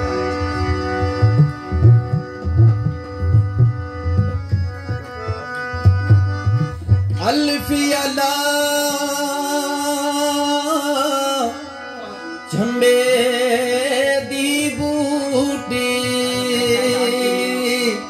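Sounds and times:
harmonium tones: 0:00.0 - 0:18.0
hand drum strokes: 0:00.4 - 0:07.4
man singing long notes: 0:07.1 - 0:18.0.

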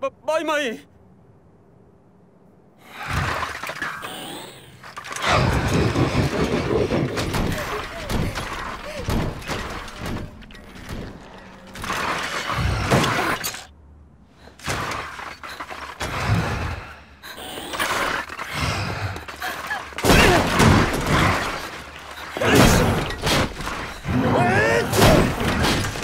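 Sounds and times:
metal crashing and shattering: 0:05.1 - 0:13.7, 0:19.2 - 0:26.0
heavy thuds: 0:05.2 - 0:13.2.

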